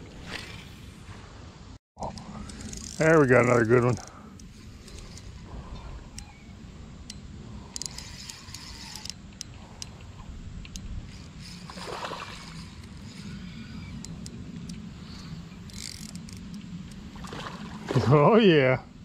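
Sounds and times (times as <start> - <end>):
water sloshing and splashing: 11.6 - 12.9, 17.1 - 18.3.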